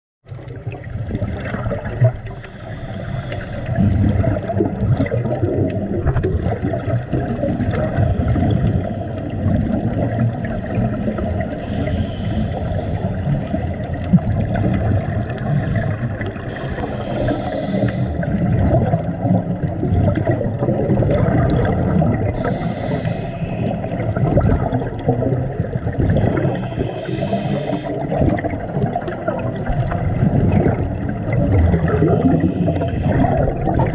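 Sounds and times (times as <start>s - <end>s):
underwater rumble of moving water: 0.2s - 33.9s
bubbling exhaled breath: 1.0s - 33.9s.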